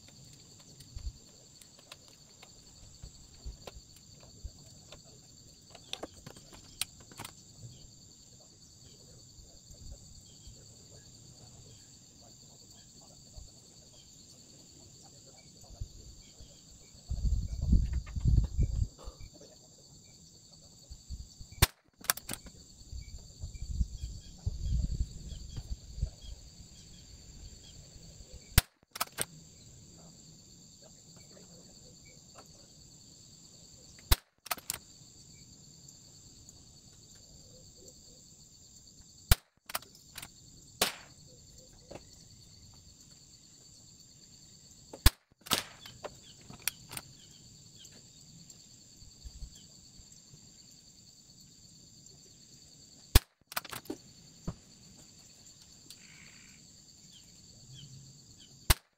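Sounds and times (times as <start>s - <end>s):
high insect drone: 0.0s - 58.9s
rifle bolt clicks: 21.6s - 22.5s, 28.6s - 29.3s, 34.1s - 34.8s
rifle shots: 40.8s - 41.2s, 45.0s - 45.9s.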